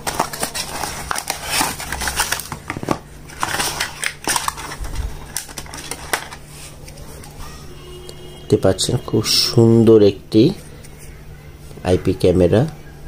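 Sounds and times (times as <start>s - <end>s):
cardboard and plastic packaging handled: 0.0s - 7.6s.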